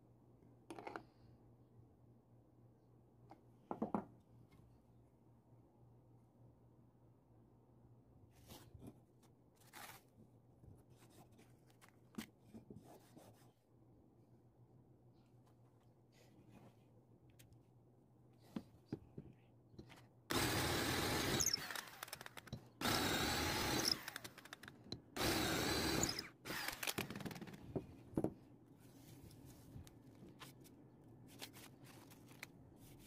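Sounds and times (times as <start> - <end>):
power drill whining: 20.3 - 24.6, 25.2 - 27.4.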